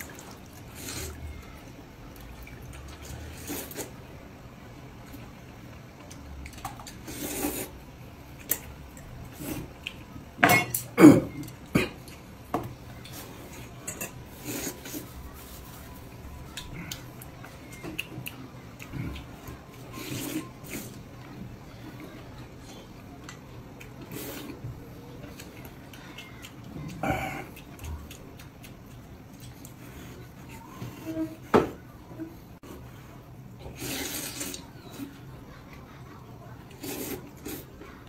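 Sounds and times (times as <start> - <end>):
noodles slurped: 7.0 - 7.8, 33.7 - 34.8, 36.7 - 37.8
chopsticks clinking on metal bowls: 13.1 - 14.7.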